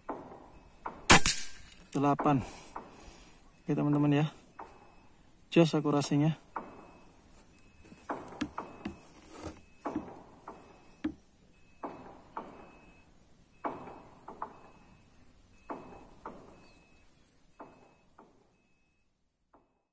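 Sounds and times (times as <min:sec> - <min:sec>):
faint high chirps: 0:03.3 - 0:19.2
light ringing knocks and clicks: 0:07.7 - 0:13.0.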